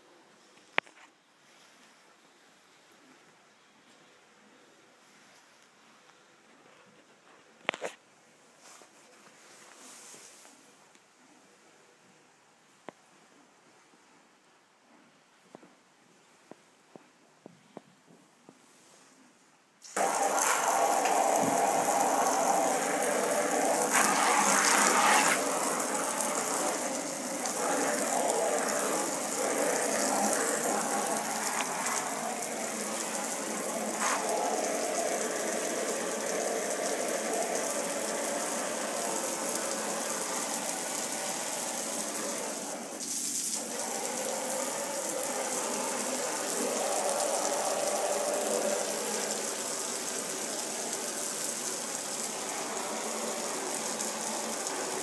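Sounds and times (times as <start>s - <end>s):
hose spraying into plastic bucket: 19.8s - 55.0s.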